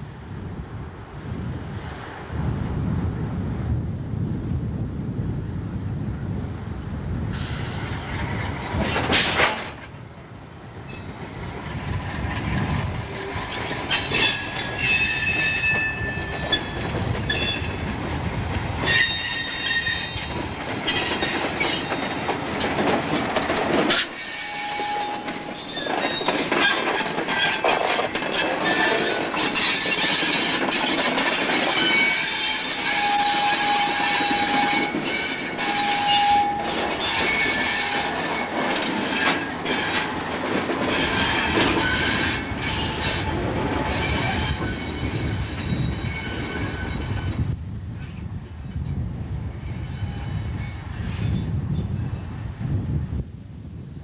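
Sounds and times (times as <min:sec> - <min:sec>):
rail-joint clicks: 0:07.3 - 0:10.0, 0:10.8 - 0:47.3
train wheels squealing: 0:07.4 - 0:08.4, 0:10.8 - 0:11.6, 0:13.1 - 0:17.8, 0:18.8 - 0:22.8, 0:23.9 - 0:40.3, 0:40.9 - 0:52.5.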